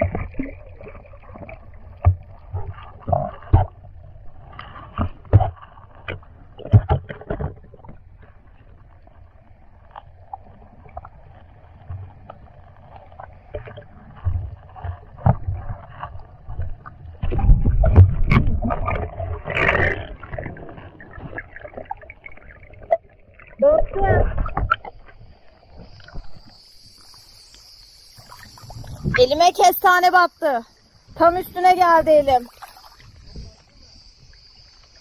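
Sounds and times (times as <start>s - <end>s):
muffled underwater knocks and bumps: 0.0s - 8.6s, 11.8s - 23.1s, 24.0s - 26.6s
low underwater rumble: 0.0s - 29.4s
rush of moving water: 0.0s - 29.8s, 31.1s - 35.0s.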